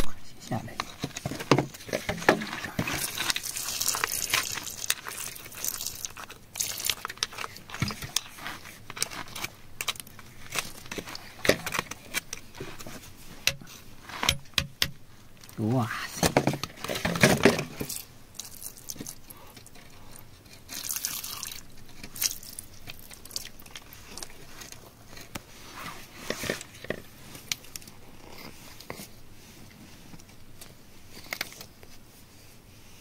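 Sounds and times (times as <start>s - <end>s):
small crackles and clicks: 0.8s - 13.6s, 17.8s - 25.5s
wet clay and rock crunching: 1.6s - 12.3s.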